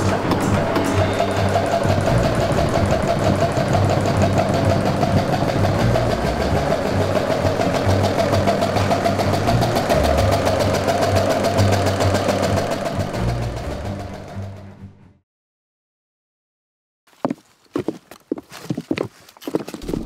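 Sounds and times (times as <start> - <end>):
generator engine running: 0.0 - 14.8.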